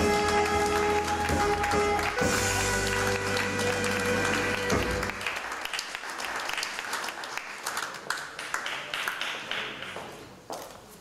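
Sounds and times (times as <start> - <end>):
music track: 0.0 - 5.4
audience applauding: 0.0 - 10.1.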